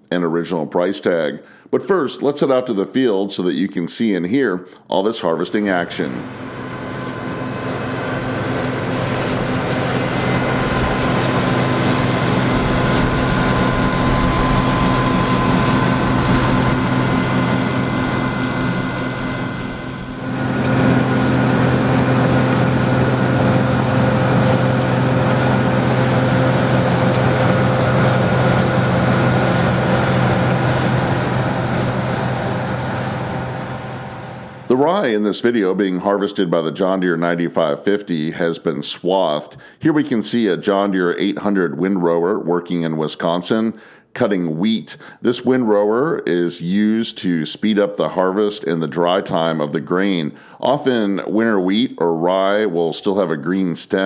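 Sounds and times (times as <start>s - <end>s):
machinery whining tones: 5.8s - 34.8s
combine harvester running: 6.0s - 34.7s.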